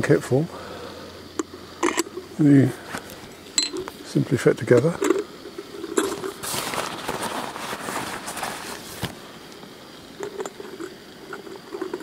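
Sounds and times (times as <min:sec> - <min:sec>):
metal parts rustling scrape: 0:05.0 - 0:09.1.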